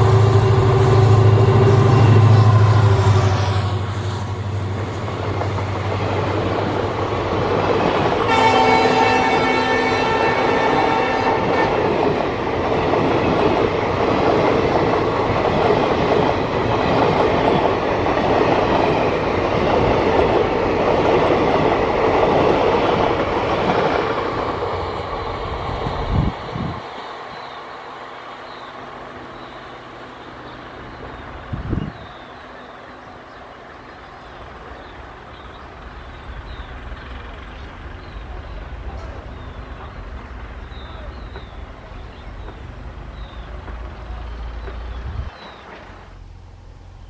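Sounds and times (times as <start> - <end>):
train horn chord: 0.0 - 4.0, 8.2 - 12.0
locomotive engine drone: 0.0 - 47.0
train coaches rumbling past: 0.0 - 47.0.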